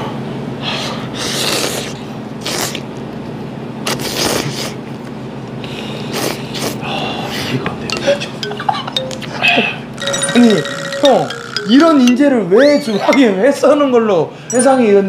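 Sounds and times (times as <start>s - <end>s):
person slurping noodles: 1.2s - 2.8s.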